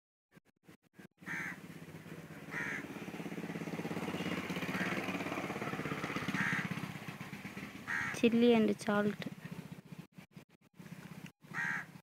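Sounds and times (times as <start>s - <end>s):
crow cawing: 1.2s - 1.6s, 2.5s - 2.9s, 4.7s - 5.1s, 6.3s - 6.8s, 7.8s - 8.2s, 11.5s - 12.0s.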